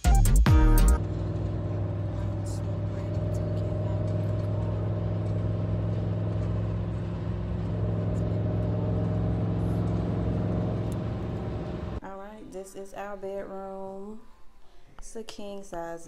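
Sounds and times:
car cabin hum: 1.0 - 12.0.

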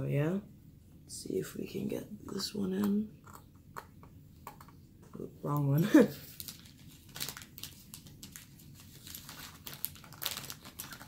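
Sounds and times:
crinkly rustling: 5.9 - 11.0.

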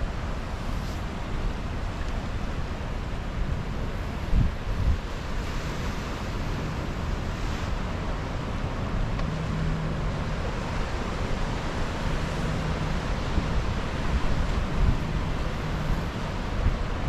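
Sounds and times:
surf breaking over rocks: 3.2 - 17.0
wind buffeting microphone: 3.4 - 17.0.

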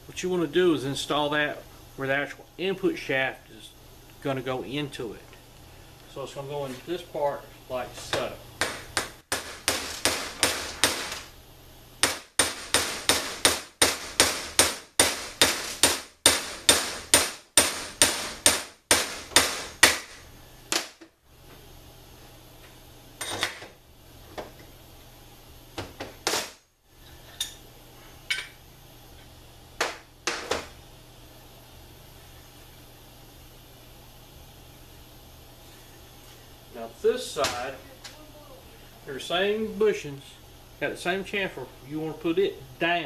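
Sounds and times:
hammer striking metal: 8.6 - 11.2, 12.0 - 20.1.

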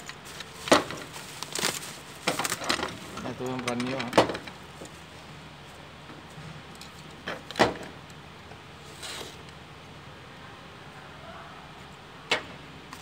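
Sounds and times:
plastic parts scraping: 0.2 - 4.4.

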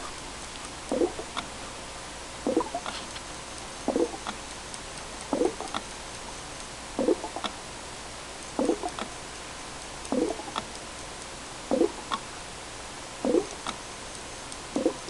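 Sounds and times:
small bubble pops: 0.9 - 1.3, 2.4 - 2.9, 3.9 - 4.4, 5.3 - 5.8, 7.0 - 7.6, 8.6 - 9.1, 11.7 - 12.2, 13.2 - 13.7, 14.8 - 15.0
air bubbles gurgling in water: 0.9 - 1.4, 2.4 - 2.9, 3.9 - 4.3, 5.3 - 5.8, 7.0 - 7.5, 8.6 - 9.0, 10.1 - 10.6, 11.7 - 12.2, 13.2 - 13.6, 14.8 - 15.0.

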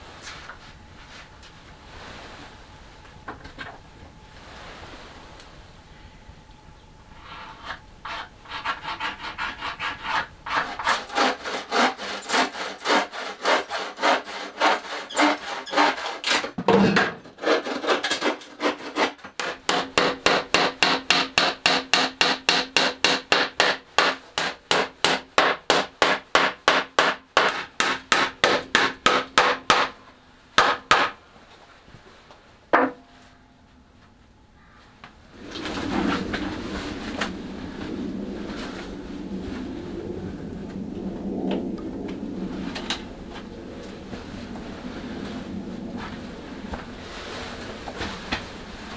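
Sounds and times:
hand tool strokes on wood: 7.2 - 16.5.

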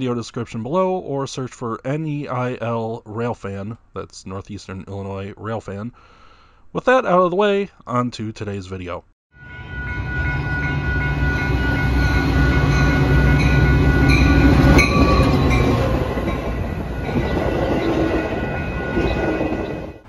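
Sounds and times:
diesel locomotive rumble: 9.5 - 20.0.

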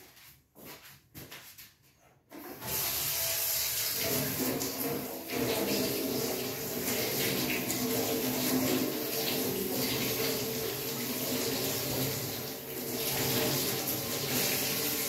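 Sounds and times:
tap water running: 2.3 - 15.0.

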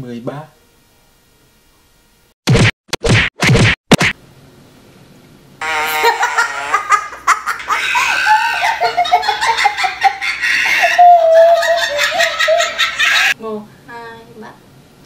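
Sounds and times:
young child laughing: 5.8 - 13.4.

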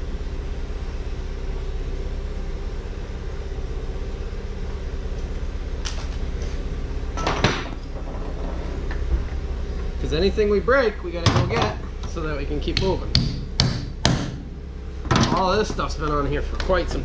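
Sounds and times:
tools knocking on metal: 11.2 - 14.4.

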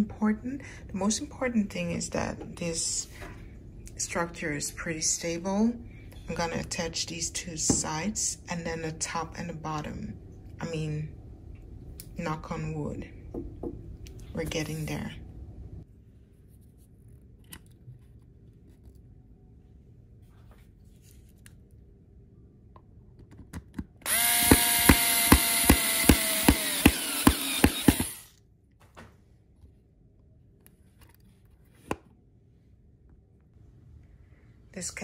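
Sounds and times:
power drill driving screws: 24.0 - 28.3.

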